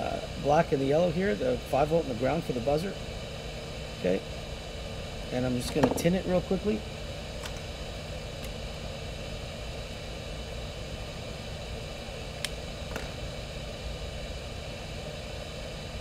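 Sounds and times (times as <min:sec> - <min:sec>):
room hum and hiss: 0:00.0 - 0:16.0.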